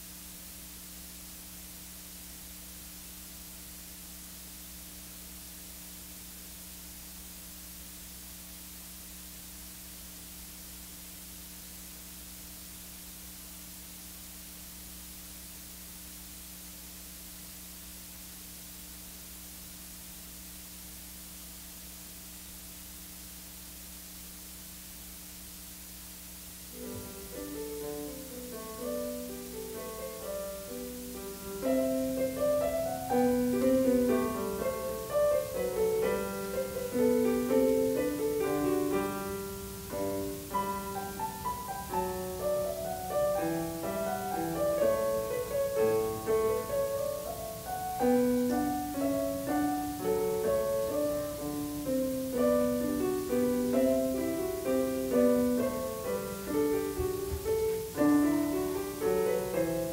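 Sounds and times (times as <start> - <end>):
solo piano piece: 26.7 - 59.9.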